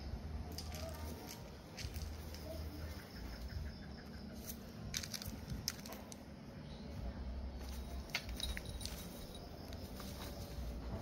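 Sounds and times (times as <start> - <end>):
leaves crackling underfoot: 0.4 - 3.5, 4.3 - 6.2, 7.6 - 11.0.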